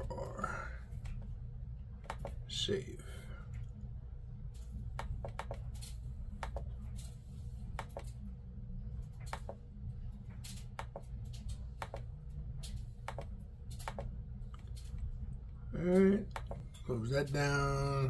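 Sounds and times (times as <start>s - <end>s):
steady low hum: 0.0s - 18.0s
computer mouse clicks: 2.0s - 2.4s, 5.0s - 7.1s, 7.7s - 8.2s, 9.2s - 9.6s, 10.4s - 15.0s, 16.3s - 16.6s
keyboard clicks: 2.0s - 2.4s, 5.0s - 5.8s, 6.4s - 6.7s, 7.8s - 8.2s, 9.2s - 9.6s, 10.4s - 12.1s, 12.7s - 14.8s, 15.9s - 16.6s.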